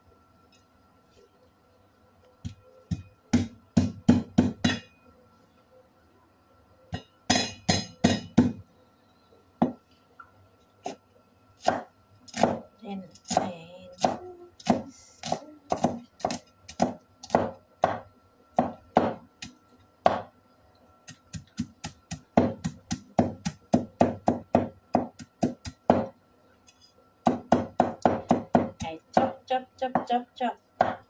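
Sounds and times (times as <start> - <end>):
cleaver chopping on wooden board: 2.9 - 4.9, 7.0 - 8.6, 14.0 - 18.0, 18.6 - 19.2, 20.0 - 20.3, 21.4 - 26.1, 27.3 - 29.3, 30.8 - 31.0.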